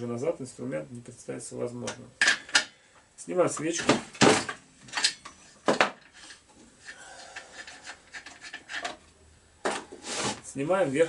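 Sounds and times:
wrench rubbing and scraping: 0:05.1 - 0:09.1.

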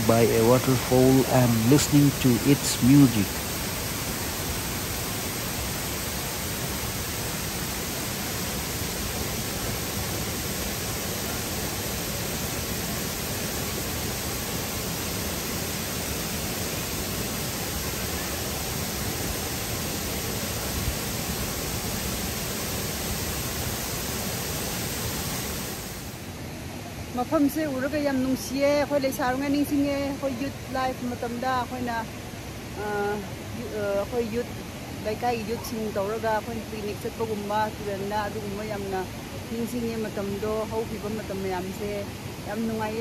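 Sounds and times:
waterfall rushing: 0:00.0 - 0:27.1.

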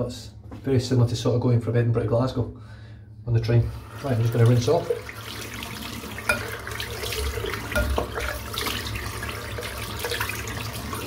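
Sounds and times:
water running into sink: 0:03.7 - 0:11.0.

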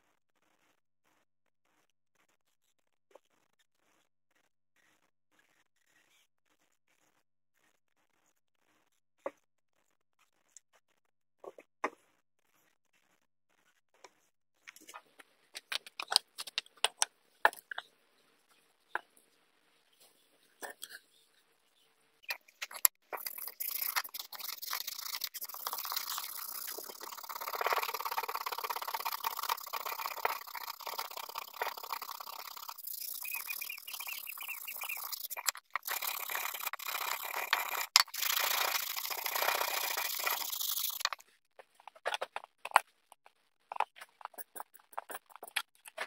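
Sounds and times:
sandpaper scrubbing wood: 0:23.5 - 0:41.1.

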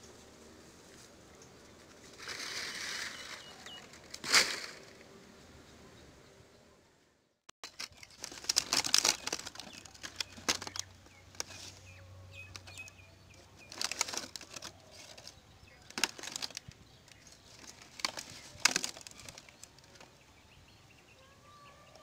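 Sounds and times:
faint birds chirping: 0:00.0 - 0:04.2, 0:04.8 - 0:22.0
dry palm fronds rustling: 0:00.0 - 0:05.0, 0:07.6 - 0:20.1
loud crunch: 0:02.0 - 0:05.1, 0:07.6 - 0:11.8, 0:12.4 - 0:20.0.

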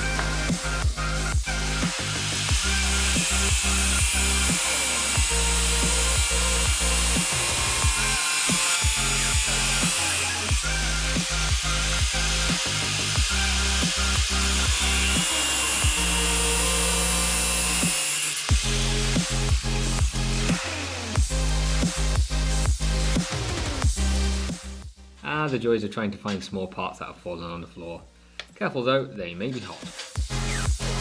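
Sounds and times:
angle grinder cutting metal: 0:00.0 - 0:21.6
electronic music with beat: 0:00.0 - 0:25.6, 0:29.5 - 0:31.0.

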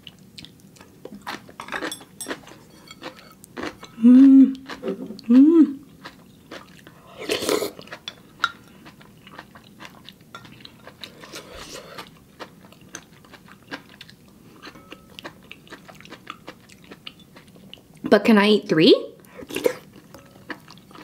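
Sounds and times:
chewing with wet mouth clicks: 0:00.0 - 0:01.6, 0:12.0 - 0:18.0
slurping soup: 0:07.0 - 0:08.0, 0:11.0 - 0:12.1.

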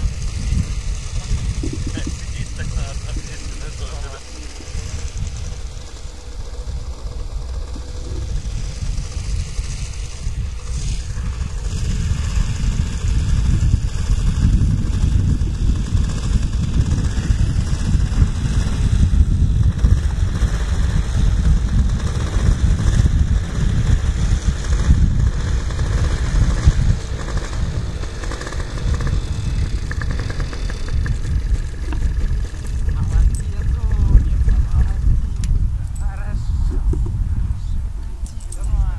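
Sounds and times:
wind buffeting microphone: 0:00.0 - 0:38.9.

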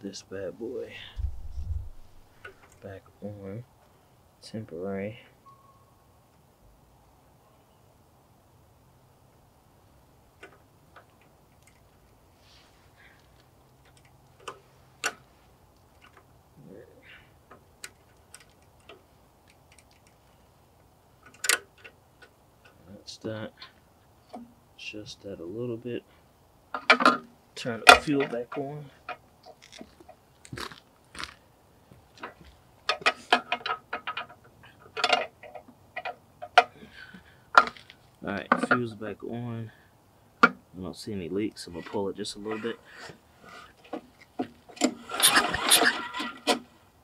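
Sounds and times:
handling rustle: 0:01.0 - 0:02.8.

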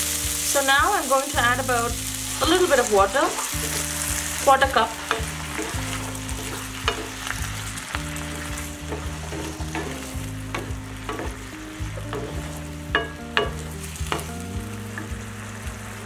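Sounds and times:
chicken sizzling in a frying pan: 0:00.0 - 0:16.0
utensil scraping a pan: 0:03.4 - 0:14.4.

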